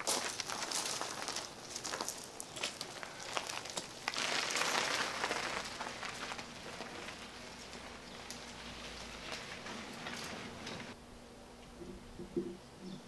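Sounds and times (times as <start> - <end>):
tyres crunching on gravel: 0.0 - 11.0.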